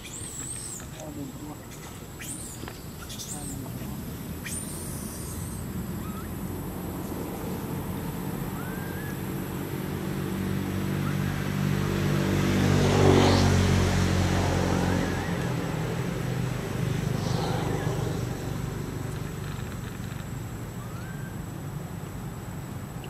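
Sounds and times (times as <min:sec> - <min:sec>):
vehicle engine driving past: 0:04.9 - 0:21.4.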